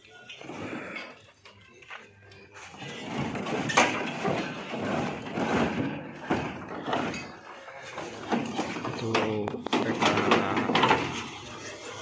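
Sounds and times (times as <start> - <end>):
wooden crate scraping on truck bed: 2.7 - 9.1.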